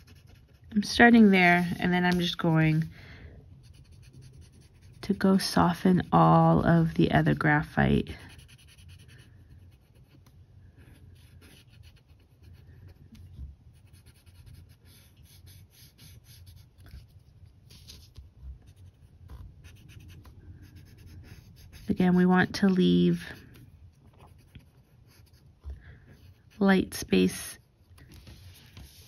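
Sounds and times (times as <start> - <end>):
paper scratching strokes: 0.0 - 2.9, 8.2 - 13.0, 13.7 - 25.6, 28.0 - 29.0.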